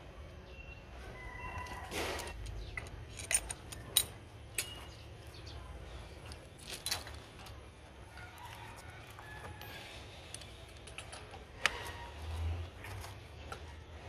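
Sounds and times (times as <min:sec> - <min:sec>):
rooster crowing: 0:01.0 - 0:02.3, 0:08.1 - 0:10.0
metal tools clinking: 0:02.2 - 0:05.0, 0:06.6 - 0:07.6.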